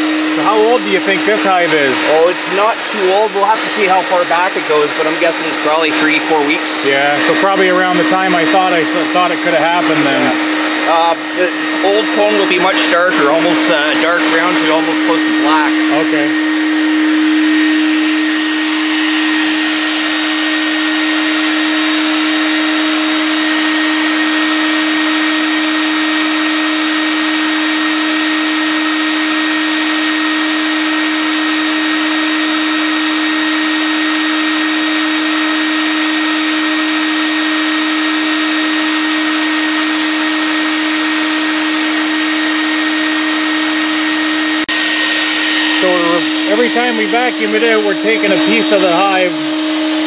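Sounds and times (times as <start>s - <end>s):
thin high whine: 0.0s - 26.8s, 38.1s - 49.5s
bee vacuum motor drone: 0.0s - 50.0s.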